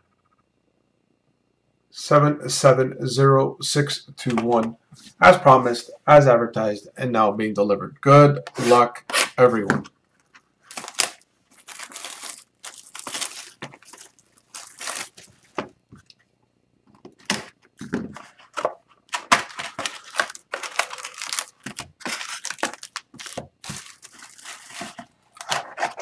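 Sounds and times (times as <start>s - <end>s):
card packs rustling: 10.2s - 16.1s, 17.0s - 26.0s
plastic wrap crinkling rips: 10.7s - 15.6s, 19.1s - 26.0s.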